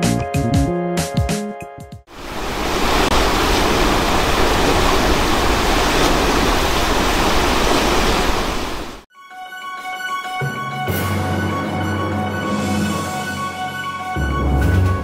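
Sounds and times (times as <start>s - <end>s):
floodwater rushing: 2.1s - 9.1s.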